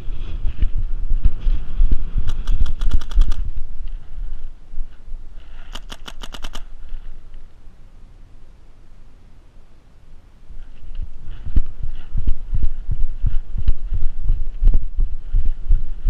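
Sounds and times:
low microphone rumble: 0:00.0 - 0:16.0
paintball marker rapid firing: 0:02.2 - 0:03.5, 0:05.8 - 0:06.7.

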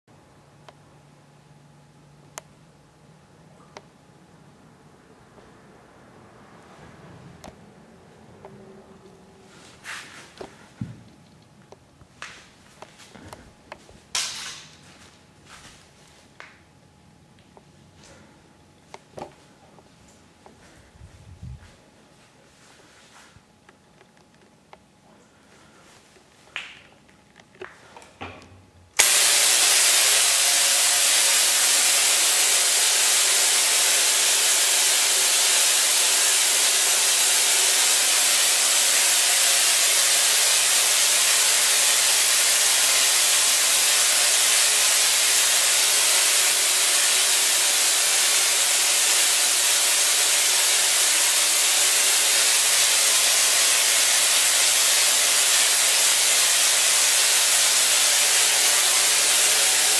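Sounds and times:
low electrical hum: 0:00.1 - 0:55.8
tesla coil hissing crackle: 0:29.0 - 0:59.9.

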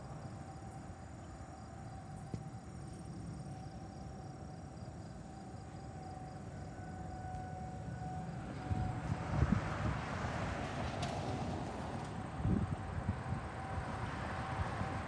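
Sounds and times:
insects chirping: 0:00.0 - 0:10.8
distant warning siren: 0:00.0 - 0:15.0.

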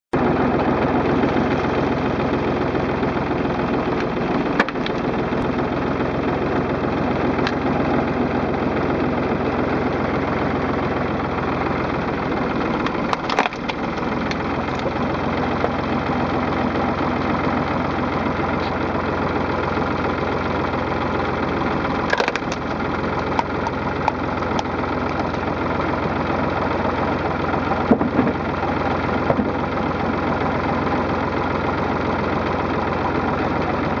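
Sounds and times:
log splitter mechanical drone: 0:00.1 - 0:34.0
wood splintering: 0:03.2 - 0:05.5, 0:07.0 - 0:08.1, 0:09.1 - 0:29.8
logs cracking apart: 0:04.0 - 0:05.3, 0:12.6 - 0:15.8, 0:21.6 - 0:25.8.

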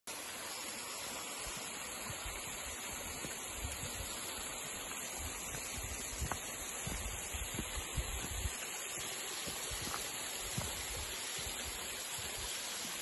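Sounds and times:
waterfall and stream rushing: 0:00.1 - 0:13.0
soft low thumps: 0:05.2 - 0:08.6, 0:09.4 - 0:12.5.

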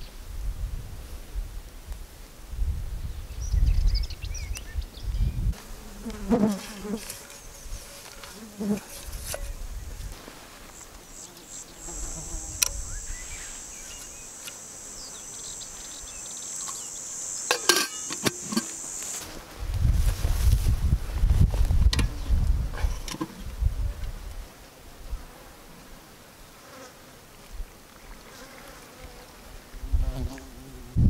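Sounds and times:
insect buzzing trill: 0:05.6 - 0:09.6, 0:10.6 - 0:19.4
handling noises: 0:06.5 - 0:11.0, 0:17.5 - 0:20.7
metal lid clicking on pot: 0:17.5 - 0:18.8.

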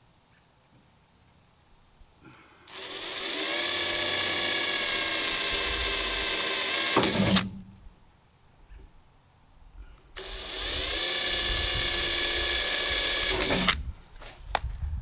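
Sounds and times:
cordless drill whining: 0:02.7 - 0:07.5, 0:10.2 - 0:13.8.

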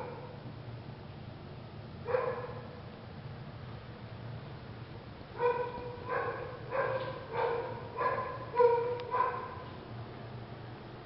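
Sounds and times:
dog barking: 0:00.0 - 0:00.3, 0:02.0 - 0:02.8, 0:05.4 - 0:09.6.

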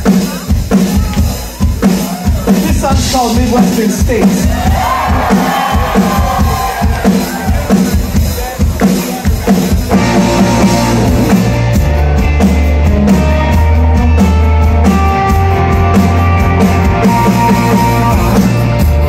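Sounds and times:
bass guitar: 0:00.0 - 0:19.0
drum kit beat: 0:00.0 - 0:19.0
electric guitars: 0:04.5 - 0:19.0.

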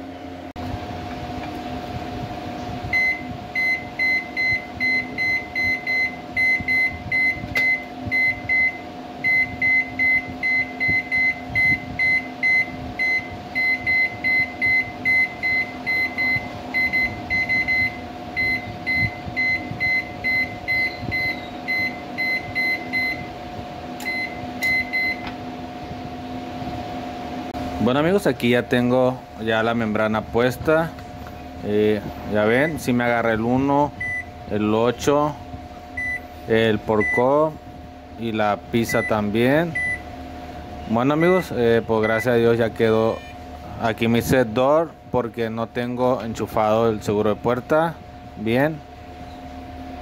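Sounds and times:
steady hum: 0:00.0 - 0:50.0
short buzzer beeps: 0:03.0 - 0:23.2, 0:43.0 - 0:43.4.

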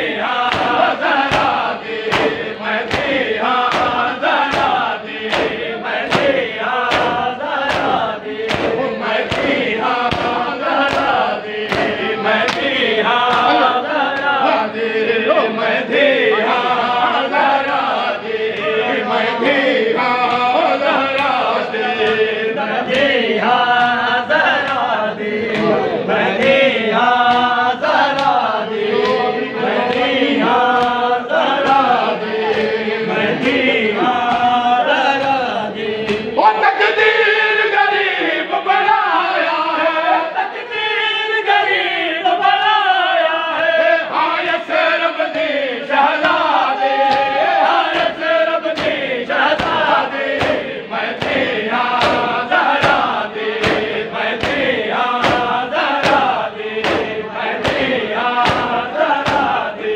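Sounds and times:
group chanting a lament: 0:00.0 - 0:59.9
hands beating on chests: 0:00.4 - 0:14.4, 0:26.4 - 0:32.8, 0:33.4 - 0:36.3, 0:46.2 - 0:59.7.

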